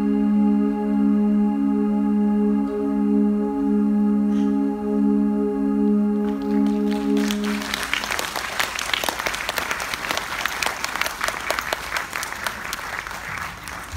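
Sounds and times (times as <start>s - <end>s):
audience applause: 6.2s - 13.9s.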